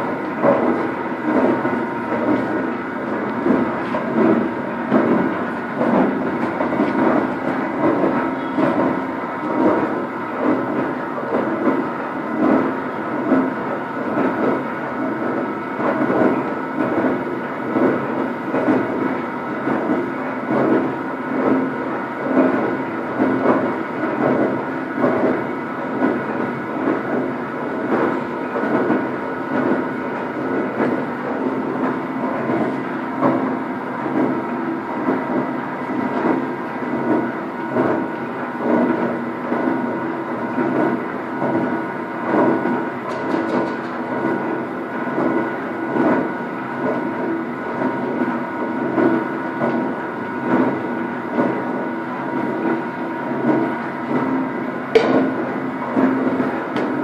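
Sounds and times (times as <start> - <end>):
milling machine hum: 0.0 - 57.0.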